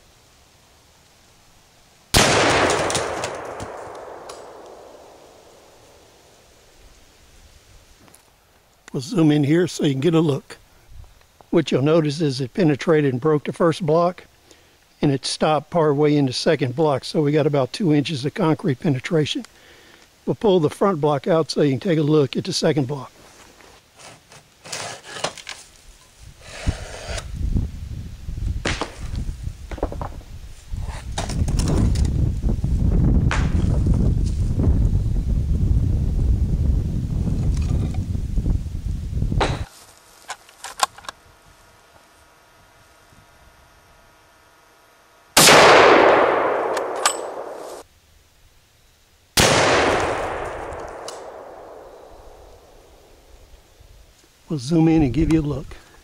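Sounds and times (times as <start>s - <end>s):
rifle shots with echo: 2.2s - 5.8s, 45.4s - 47.8s, 49.4s - 52.8s.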